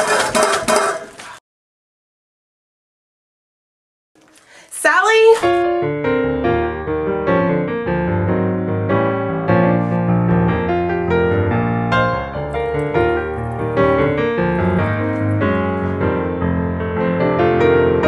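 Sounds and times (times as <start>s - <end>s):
piano music: 5.4s - 18.0s.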